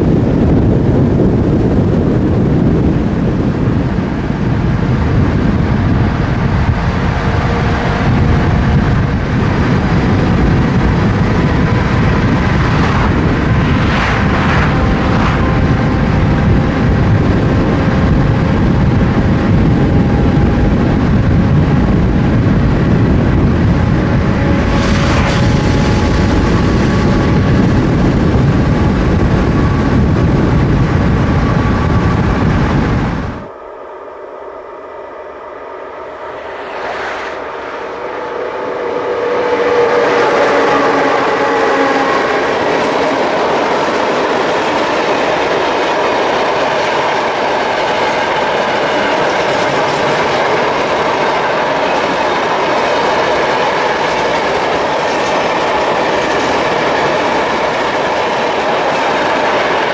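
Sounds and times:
road and wind noise: 0.0 - 33.6, 34.5 - 59.9
faint rising whine: 31.3 - 41.5.

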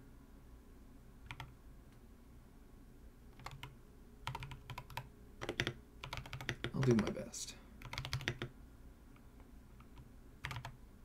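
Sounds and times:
mechanical keyboard typing: 1.3 - 1.5, 3.4 - 8.5, 9.8 - 10.8.

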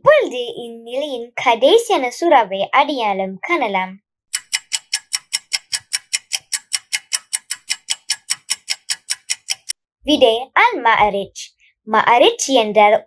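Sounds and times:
clock ticking: 4.3 - 9.8.

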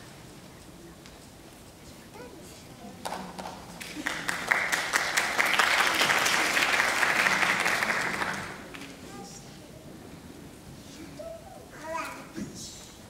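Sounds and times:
audience applauding: 3.4 - 9.0.

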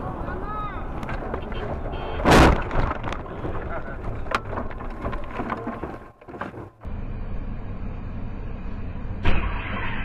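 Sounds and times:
car road noise hum: 0.0 - 10.0
clicks and knocks: 2.4 - 6.7.

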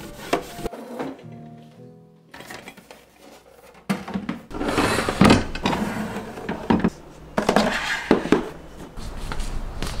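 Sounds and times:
plastic containers scraping in drawer: 4.5 - 8.5.

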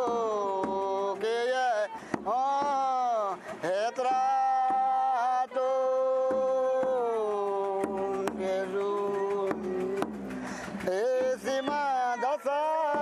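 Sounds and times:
person singing a chant: 0.0 - 10.2.

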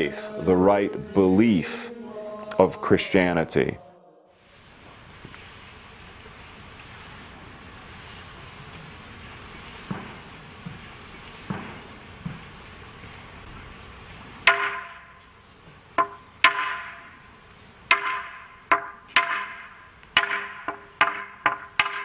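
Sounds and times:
mallet knocking on wooden plank: 14.5 - 15.0, 16.0 - 17.0, 17.9 - 22.0.

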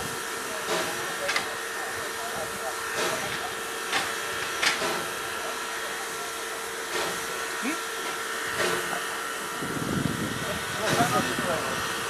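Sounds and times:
steam hissing: 0.0 - 12.0.

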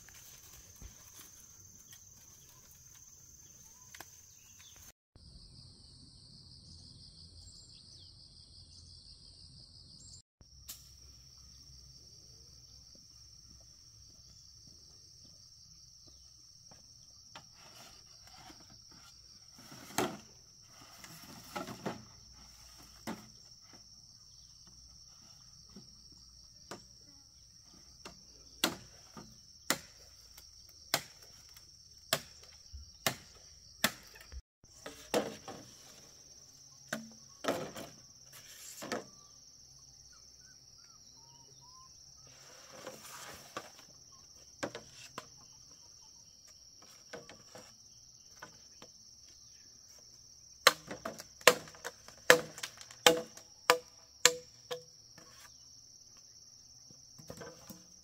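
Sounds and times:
insects droning: 0.0 - 58.0
hand tool striking wood: 28.0 - 30.0, 30.9 - 31.2, 32.1 - 35.5, 50.6 - 55.3.

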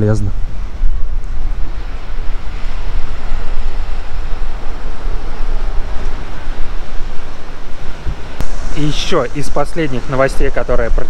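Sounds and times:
wind buffeting microphone: 0.0 - 11.0
sea waves washing: 0.4 - 11.0.

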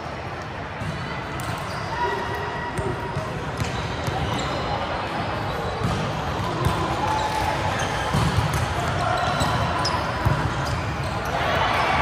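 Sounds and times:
sneakers squeaking on court: 2.8 - 12.0
volleyball hits: 5.8 - 10.7.

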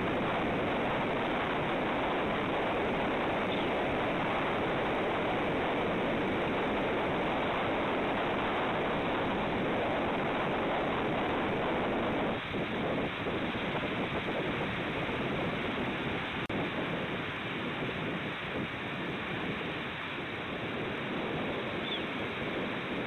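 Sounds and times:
sea surf: 0.0 - 23.0
wind on microphone: 0.0 - 23.0.

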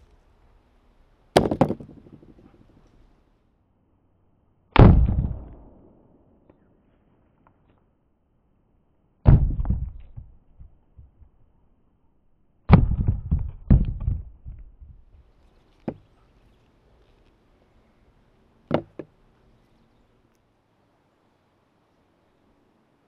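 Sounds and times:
mallet smashing fruit on bricks: 1.4 - 2.3, 9.3 - 10.0, 12.7 - 14.3, 18.7 - 19.1.

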